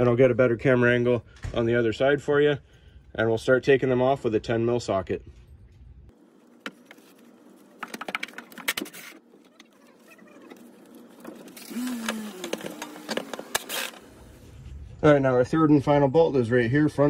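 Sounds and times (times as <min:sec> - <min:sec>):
cordless power tool whirring: 0:11.3 - 0:14.5.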